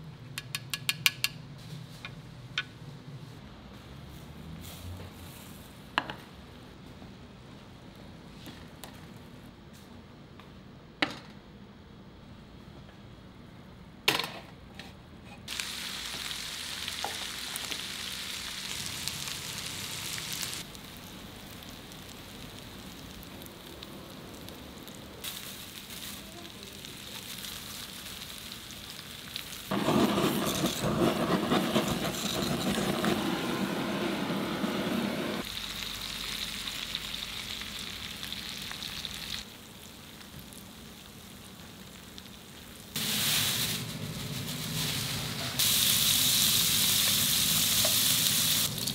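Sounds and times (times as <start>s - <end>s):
intestines sizzling: 15.5s - 48.9s.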